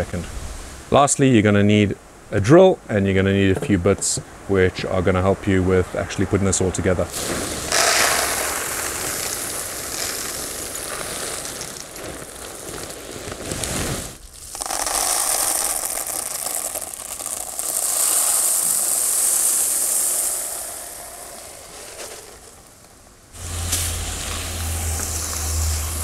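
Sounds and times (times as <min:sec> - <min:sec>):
clay pebbles pouring into tub: 0:07.1 - 0:26.0.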